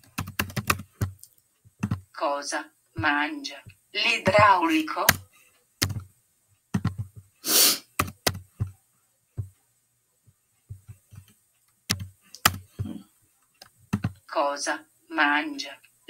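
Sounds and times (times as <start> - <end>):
typing on a keyboard: 0.0 - 2.0, 5.8 - 6.1, 6.7 - 7.2, 8.0 - 8.7, 10.9 - 12.8
short breathy hiss: 7.4 - 8.0.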